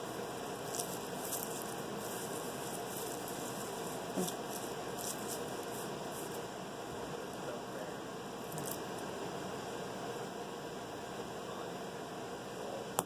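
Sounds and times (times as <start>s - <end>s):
garlic skins crackling: 0.0s - 6.5s
steady hiss: 0.0s - 13.0s.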